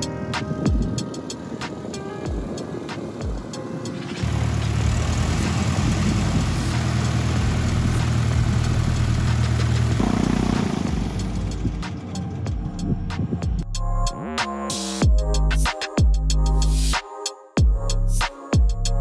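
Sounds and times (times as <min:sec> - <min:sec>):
engine running: 0:04.2 - 0:13.6.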